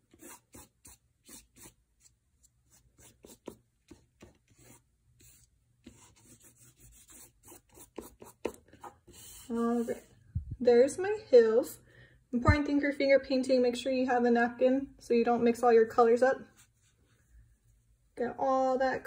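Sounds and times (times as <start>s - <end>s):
fingertips rubbing paint on paper: 0.0s - 10.1s.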